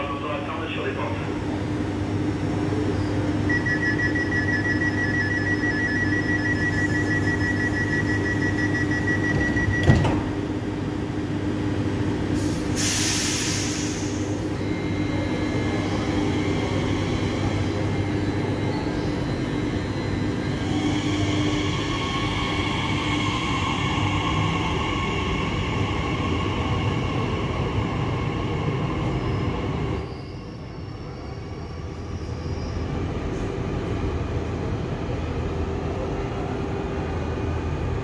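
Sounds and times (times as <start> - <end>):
two-tone door warning beeps: 3.4 - 10.4, 14.5 - 22.1
train doors shutting knock: 9.2 - 10.5
air hiss: 12.4 - 14.3.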